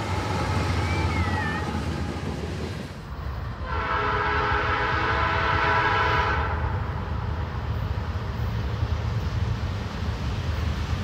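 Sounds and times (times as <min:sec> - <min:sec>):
train rumble: 0:00.0 - 0:11.0
locomotive air horn chord: 0:03.6 - 0:06.7.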